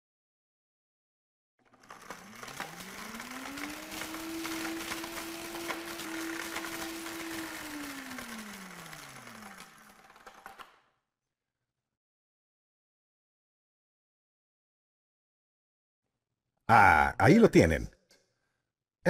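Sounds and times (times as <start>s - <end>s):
blender motor whine: 1.6s - 10.9s.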